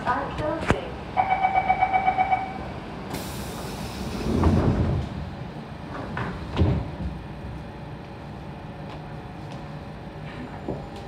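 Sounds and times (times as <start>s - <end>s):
train doors sliding shut: 3.1s - 7.2s.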